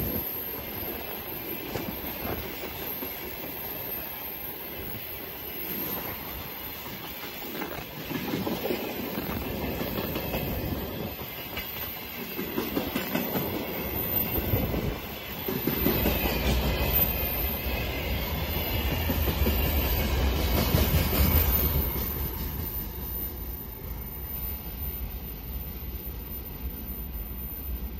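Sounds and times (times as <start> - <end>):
train wheels clattering over rail joints: 5.9 - 22.7
deep train rumble: 5.9 - 27.9.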